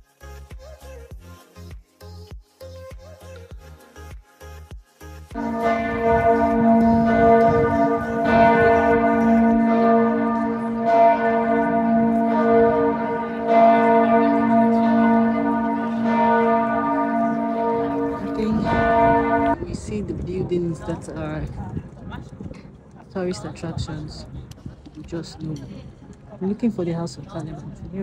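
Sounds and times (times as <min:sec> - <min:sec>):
church bells ringing: 0:05.3 - 0:19.9.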